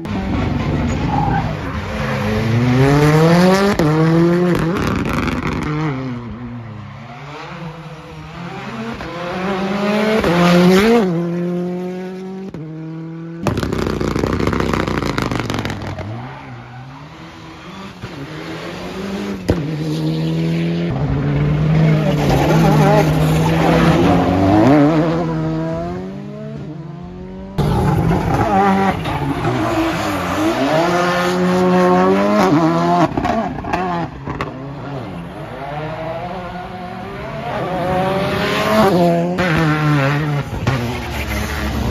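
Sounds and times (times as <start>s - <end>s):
rally car engines revving: 0.0s - 41.9s
tyre squeal: 16.0s - 18.0s.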